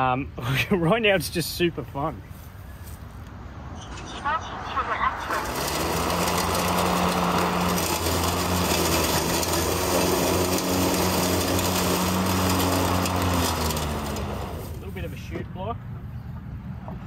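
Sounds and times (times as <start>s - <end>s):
blade cutting long grass: 5.3s - 15.2s
lawn mower motor: 5.3s - 15.2s.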